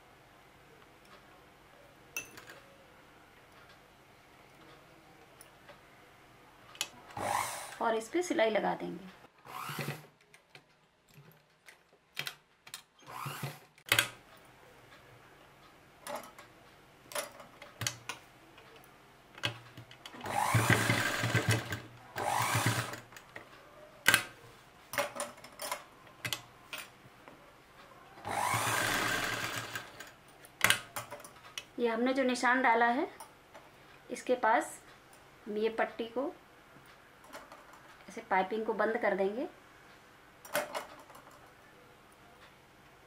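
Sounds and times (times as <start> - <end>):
electric sewing machine stitching: 7.1 - 7.9, 9.4 - 10.1, 13.0 - 13.7, 20.1 - 23.2, 28.2 - 30.1.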